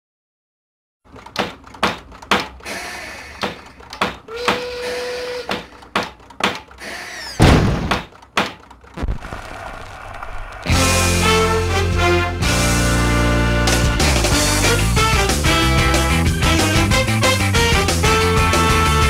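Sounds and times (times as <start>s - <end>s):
irregular knocks and clunks: 1.1s - 2.7s, 3.3s - 4.7s, 5.4s - 6.8s, 7.4s - 9.0s
hammer tapping wooden toys: 1.3s - 2.6s, 3.3s - 4.8s, 5.4s - 6.8s
loud heavy thump: 7.4s - 9.3s.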